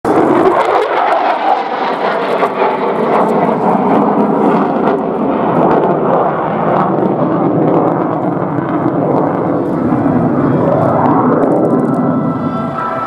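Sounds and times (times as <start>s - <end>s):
jet engine roar: 0.0s - 13.0s.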